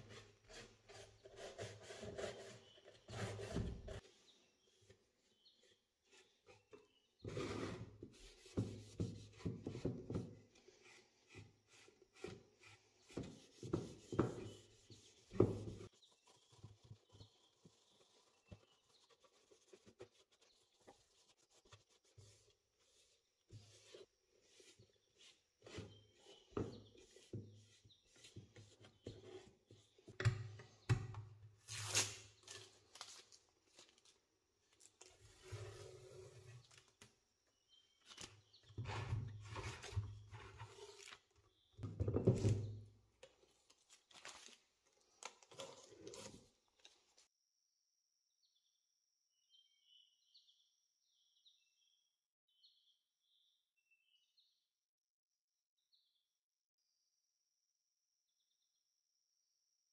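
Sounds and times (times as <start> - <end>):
masking tape ripping off: 31.6 - 32.6.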